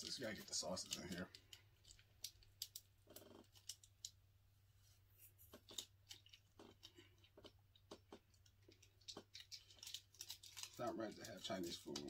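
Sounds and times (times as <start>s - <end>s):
plastic packet crinkling: 0.0s - 4.2s, 8.2s - 12.0s.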